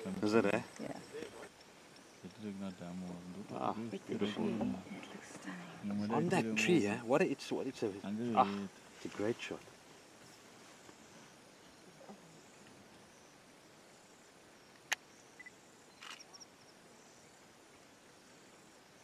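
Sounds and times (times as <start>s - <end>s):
low hiss: 0.0s - 19.0s
faint rustles: 8.4s - 13.1s
high-pitched insect chirping: 12.3s - 17.4s.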